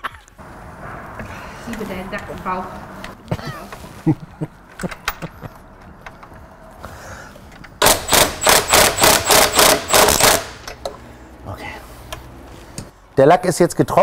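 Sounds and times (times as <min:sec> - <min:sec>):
tools clicking and knocking: 0:04.7 - 0:06.5, 0:07.4 - 0:11.0
impact wrench hammering: 0:07.8 - 0:10.8.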